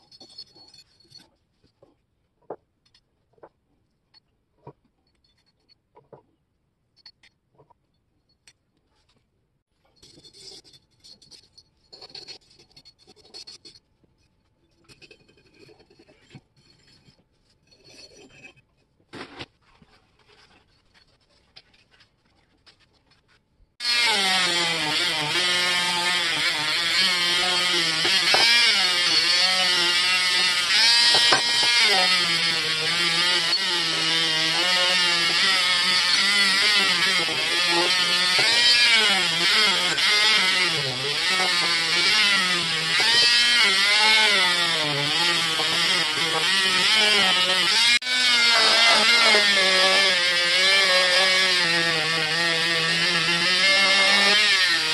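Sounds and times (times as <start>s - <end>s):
rotary tool whining: 23.8s - 54.9s.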